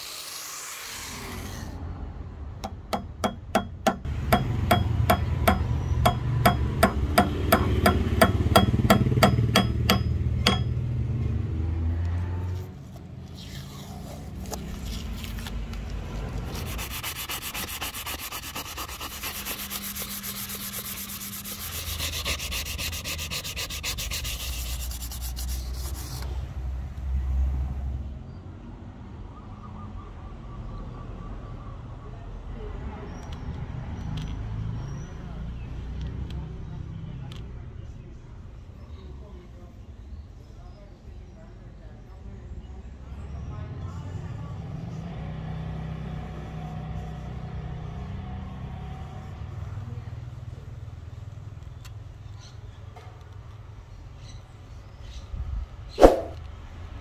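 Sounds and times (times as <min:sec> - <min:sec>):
fine fast scraping: 0:00.0 - 0:01.8, 0:12.2 - 0:26.5, 0:56.0 - 0:56.4
rhythmic rubbing on wood: 0:02.7 - 0:10.8, 0:16.5 - 0:26.2.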